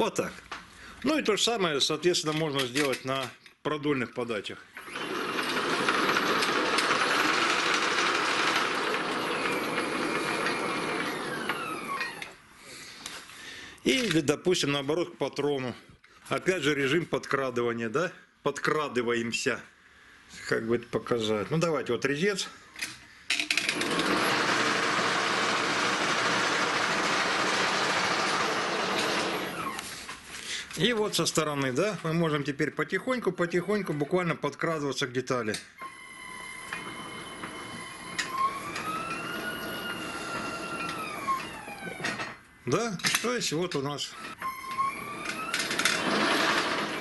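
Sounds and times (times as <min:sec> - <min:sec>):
lathe motor whirring: 0:04.8 - 0:12.3, 0:23.7 - 0:29.8, 0:36.2 - 0:42.2, 0:44.2 - 0:47.0.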